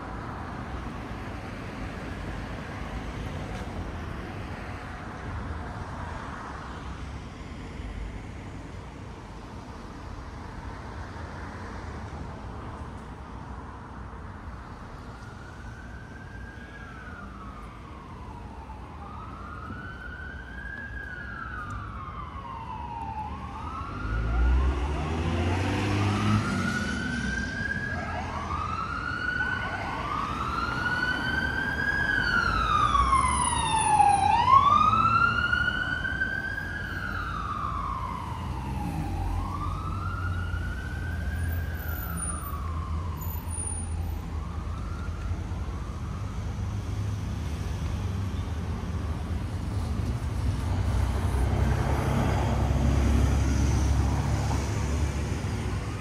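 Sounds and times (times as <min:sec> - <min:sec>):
emergency vehicle siren wailing: 0:14.5 - 0:48.0, 0:49.8 - 0:56.0
second siren wail: 0:15.0 - 0:46.5.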